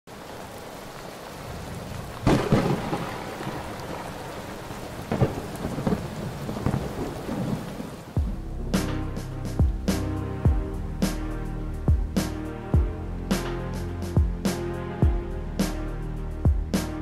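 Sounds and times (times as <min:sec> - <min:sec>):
heavy rain falling: 0:00.1 - 0:17.0
thunder rumbles: 0:00.4 - 0:08.9.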